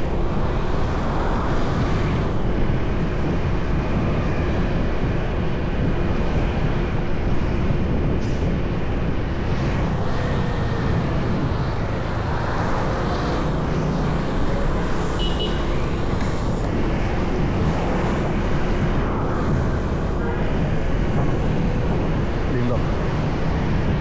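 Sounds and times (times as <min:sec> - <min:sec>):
city traffic rumble: 0:00.0 - 0:24.0.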